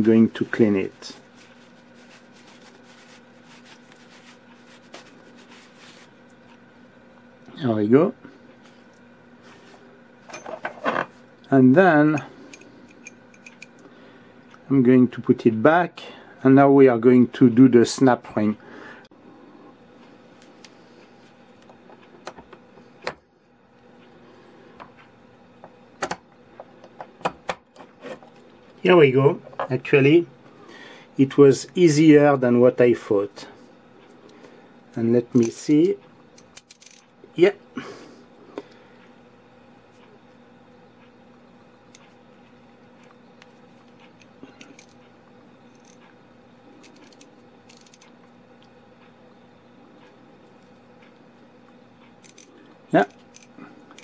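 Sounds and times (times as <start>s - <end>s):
faint handling noise: 0.0s - 6.7s
small metal parts clicking: 36.4s - 37.0s, 46.8s - 48.1s, 52.2s - 54.0s
ratchet wrench clicking: 46.9s - 48.0s.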